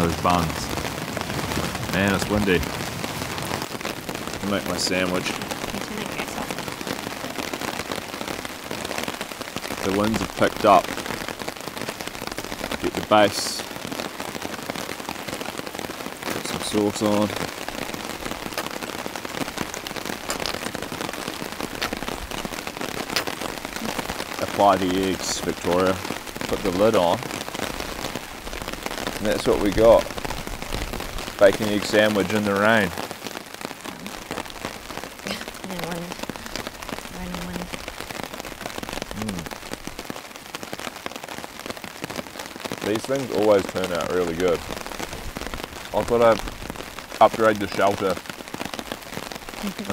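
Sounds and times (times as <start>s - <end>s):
heavy rain on a tarp: 0.0s - 49.9s
person humming: 39.2s - 39.5s.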